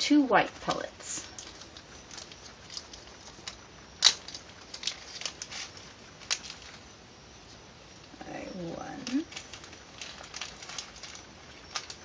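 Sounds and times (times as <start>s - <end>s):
plastic packaging rustling: 0.4s - 12.0s
plastic pellets clicking: 1.2s - 6.9s, 8.9s - 12.0s.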